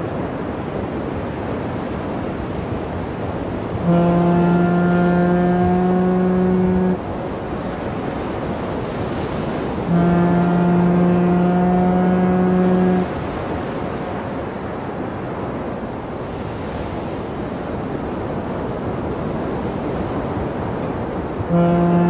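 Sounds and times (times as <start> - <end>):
sea wash: 0.0 - 22.0
foghorn blasts: 3.7 - 7.4, 9.2 - 13.5, 21.4 - 22.0.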